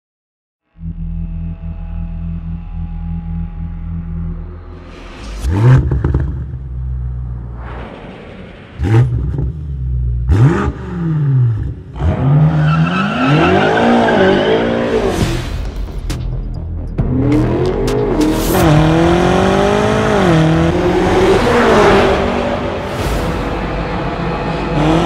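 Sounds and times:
car engine revving hard: 5.4s - 6.6s, 10.2s - 15.2s, 17.1s - 22.9s, 24.2s - 25.0s.

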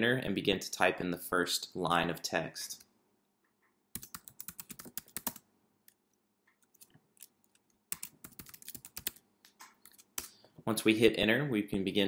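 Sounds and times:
typing on computer keyboard: 3.9s - 10.4s.

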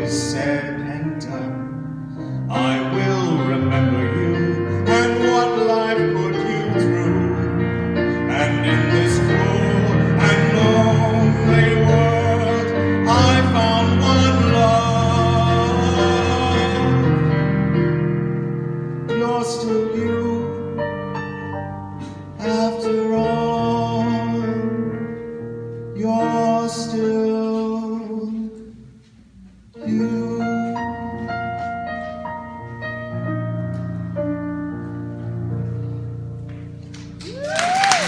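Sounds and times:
man singing a slow ballad: 0.0s - 1.8s, 2.4s - 17.7s, 19.0s - 21.1s, 22.2s - 25.2s, 25.9s - 28.8s, 29.8s - 32.0s
piano accompaniment: 0.0s - 38.0s.

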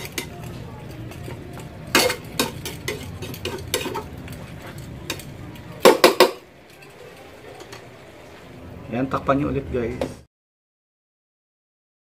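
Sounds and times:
metal spoon scraping frying pan: 0.0s - 5.4s.

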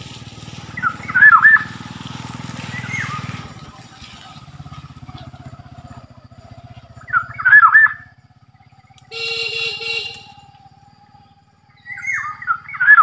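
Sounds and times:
low pulsing engine hum: 0.0s - 13.0s
bird fluty whistled calls: 0.8s - 1.8s, 2.7s - 3.3s, 6.6s - 13.0s
bird harsh nasal call: 9.1s - 10.5s.

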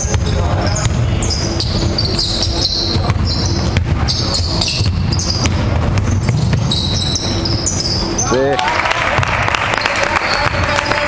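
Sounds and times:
basketball bouncing on wooden floor: 0.0s - 8.2s
shoes squeaking on court: 0.0s - 8.6s
gym hall background noise: 0.0s - 11.0s.

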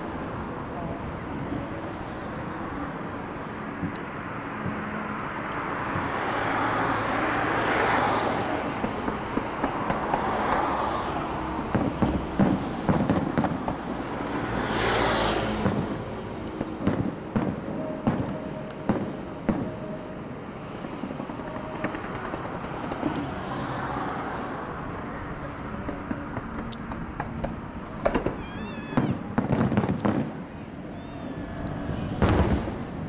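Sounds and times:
firework bangs and crackles: 0.0s - 33.0s
firework shells hissing up: 8.2s - 33.0s.

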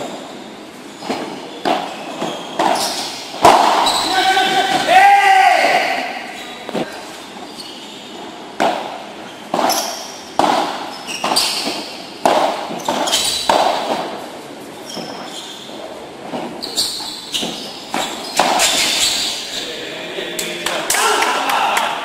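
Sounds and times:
ball bouncing on court: 1.0s - 4.1s, 8.6s - 14.1s.

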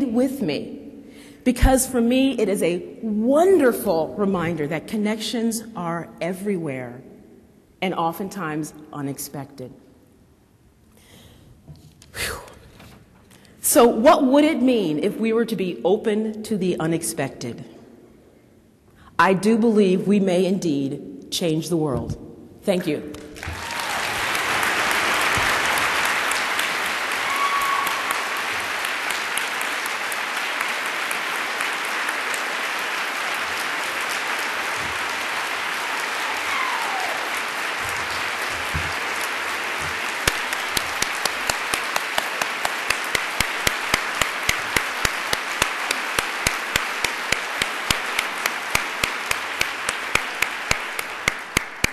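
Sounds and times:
audience applauding: 23.1s - 51.9s
rhythmic sharp claps: 23.1s - 51.9s.

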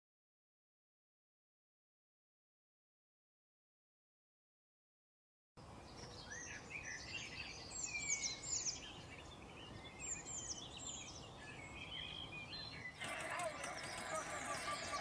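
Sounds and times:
small birds chirping: 5.6s - 15.0s.

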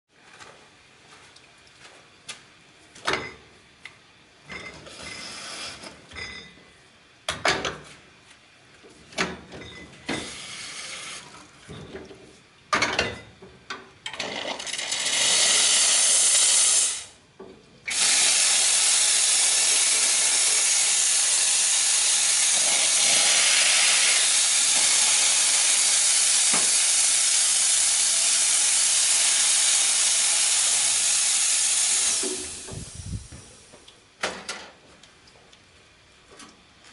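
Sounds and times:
espresso machine steam hiss: 4.9s - 5.8s, 10.1s - 11.2s, 14.8s - 17.2s, 17.9s - 33.6s.

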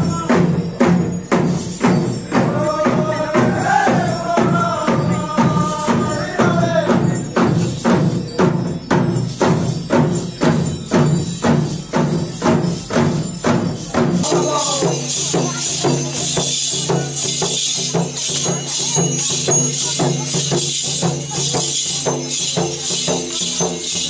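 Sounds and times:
hand drums beating a rhythm: 0.0s - 24.0s
group chanting: 2.3s - 7.0s.

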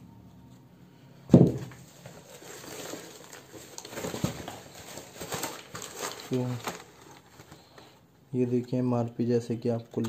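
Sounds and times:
cardboard box and paper rustling: 1.8s - 7.8s.

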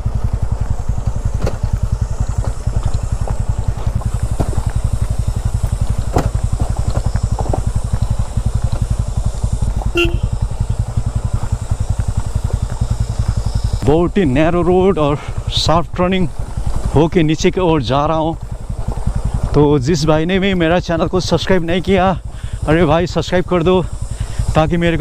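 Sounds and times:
bike rattling over bumps: 0.0s - 25.0s
motorcycle engine thumping: 0.0s - 25.0s
brief high tone: 10.0s - 10.4s.

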